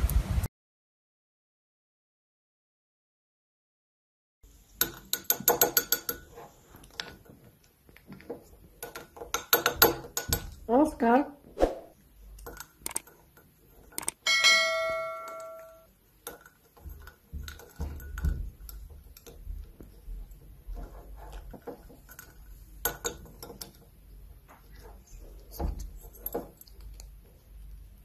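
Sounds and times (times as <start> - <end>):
bell-like ring: 14.2 - 15.9.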